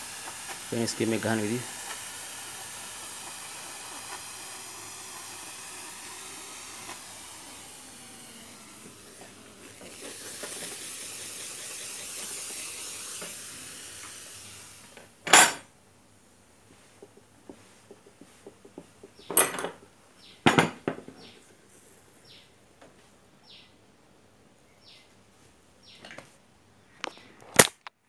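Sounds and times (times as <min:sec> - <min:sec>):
steam iron hissing: 0:00.0 - 0:15.2.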